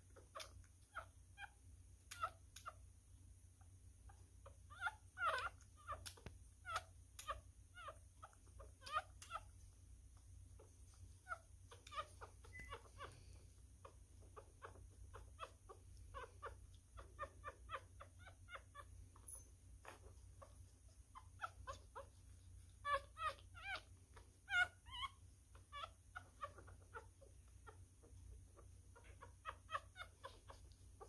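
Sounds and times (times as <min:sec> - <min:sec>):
puppy squeaking and whimpering: 0:00.0 - 0:03.0, 0:03.6 - 0:31.0.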